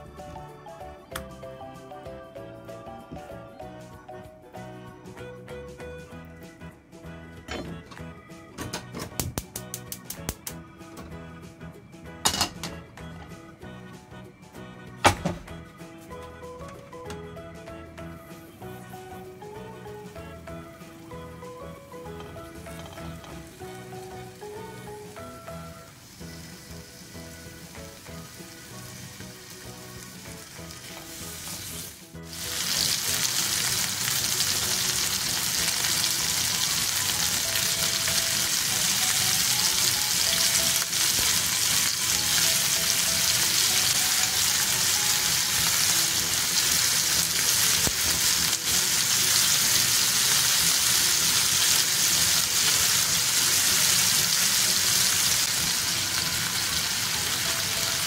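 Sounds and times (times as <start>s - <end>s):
background music: 0.0s - 58.0s
food sizzling in a pan: 18.4s - 58.0s.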